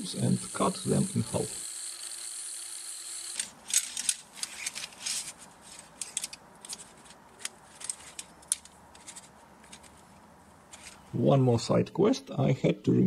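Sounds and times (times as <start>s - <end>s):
aluminium tubes clinking: 3.7s - 10.0s.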